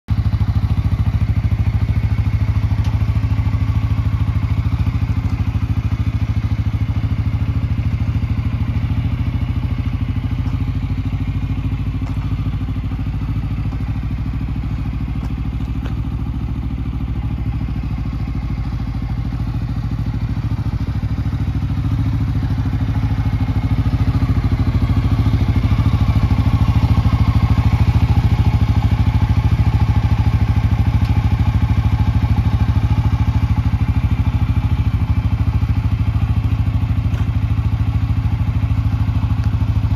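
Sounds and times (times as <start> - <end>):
atv engine idling: 0.1 - 39.9.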